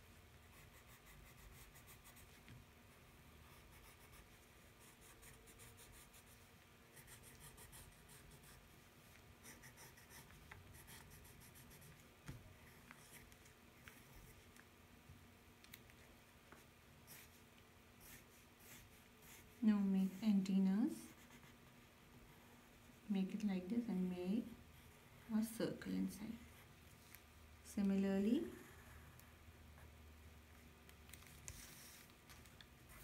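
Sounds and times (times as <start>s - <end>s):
faint steady hum: 0.0s - 33.0s
pencil scratching on paper: 0.5s - 2.4s, 3.4s - 12.0s, 17.1s - 17.4s, 18.0s - 20.4s, 21.0s - 21.6s.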